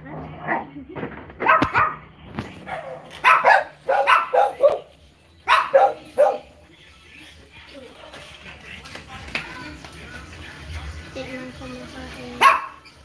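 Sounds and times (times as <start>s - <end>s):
small dog yapping: 1.4s - 2.0s, 2.7s - 4.8s, 12.4s - 12.9s.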